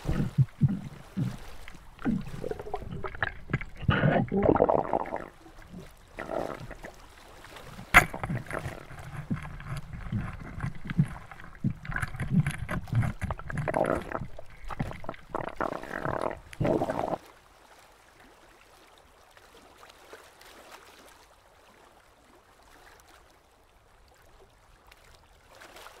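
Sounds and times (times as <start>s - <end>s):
underwater knocks: 0.0s - 6.9s, 7.6s - 17.2s
underwater rumbles and gurgling: 0.0s - 17.2s.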